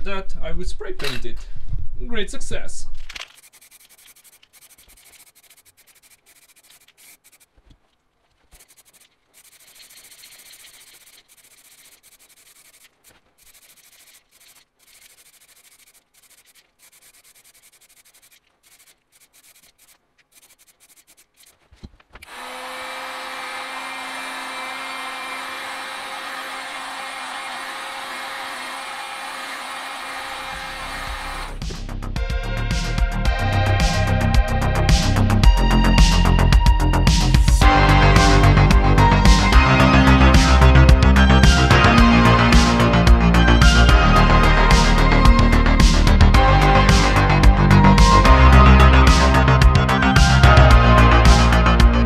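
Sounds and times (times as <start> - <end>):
aerosol spray can hissing: 3.3 - 7.5, 8.5 - 21.6, 22.3 - 31.6
heat gun blowing: 3.3 - 7.6, 8.5 - 31.6.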